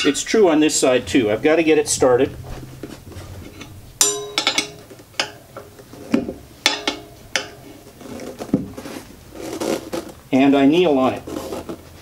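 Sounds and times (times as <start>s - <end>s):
tire irons clinking on wheel rim: 0.0s - 11.8s.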